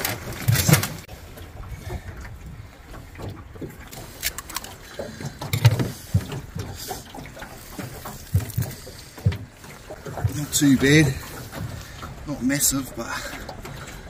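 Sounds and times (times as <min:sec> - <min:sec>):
sea urchin shell cracking: 0:04.0 - 0:04.8.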